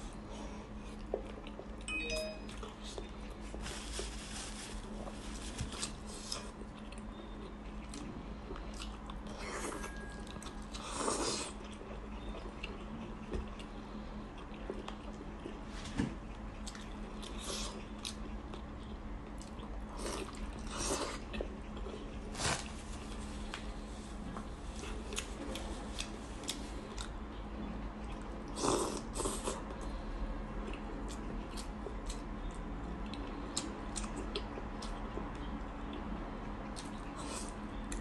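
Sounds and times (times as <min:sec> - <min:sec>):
steady low hum: 0:00.0 - 0:38.0
person chewing: 0:04.9 - 0:13.8.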